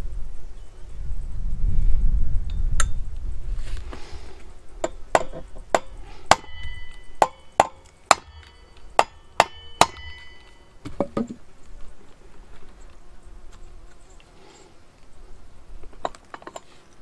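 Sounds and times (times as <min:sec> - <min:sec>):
hammer striking steel punch: 0:04.8 - 0:10.6.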